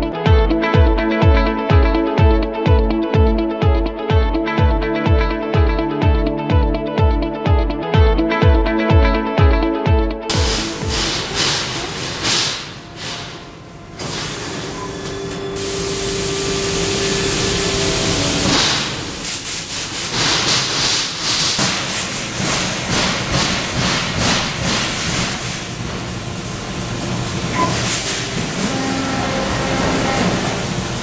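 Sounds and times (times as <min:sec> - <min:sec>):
machine hum: 0:10.3 - 0:19.5, 0:23.3 - 0:31.0
laser cutting head hissing: 0:15.6 - 0:20.6.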